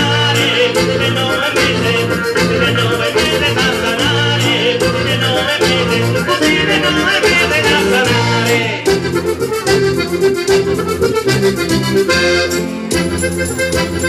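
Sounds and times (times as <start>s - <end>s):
accordion folk dance music: 0.0s - 14.0s.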